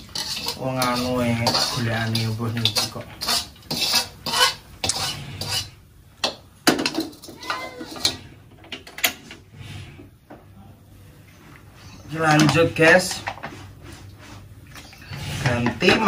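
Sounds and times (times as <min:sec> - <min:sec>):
spatula scraping metal wok: 0:00.0 - 0:05.9, 0:07.1 - 0:08.5, 0:11.7 - 0:16.0.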